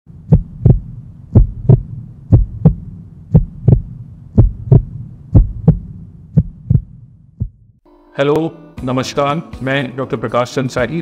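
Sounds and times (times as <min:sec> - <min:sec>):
heartbeat thumps: 0:00.1 - 0:07.8
low steady hum: 0:00.1 - 0:08.1.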